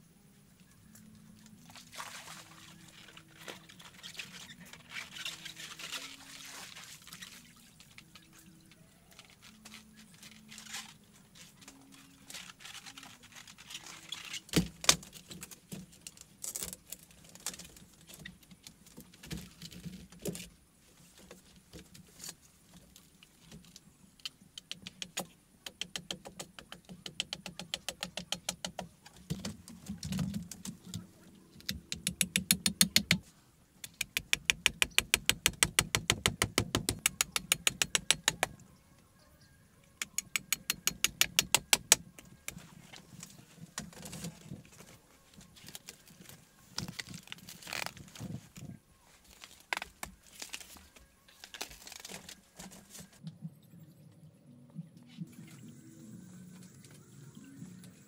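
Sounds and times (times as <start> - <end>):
bamboo knocking and clattering: 2.0 - 20.5, 21.1 - 33.2, 33.8 - 38.6, 40.0 - 53.2
hand tool clicking on bamboo: 24.2 - 29.2, 31.6 - 33.2, 33.8 - 38.6, 40.0 - 42.6.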